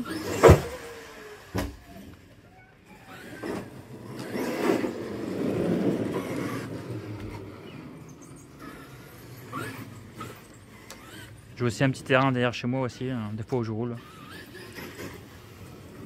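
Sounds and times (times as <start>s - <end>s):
tyres and motor rumbling: 0.0s - 16.0s
toy truck landing thud: 0.2s - 0.9s.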